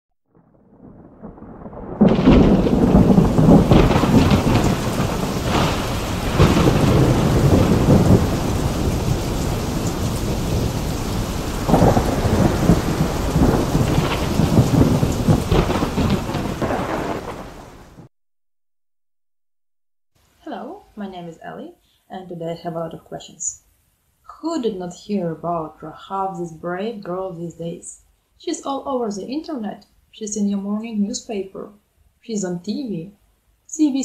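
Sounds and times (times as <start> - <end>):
thunder rolling: 0.3 - 18.1
heavy rain: 0.8 - 18.1.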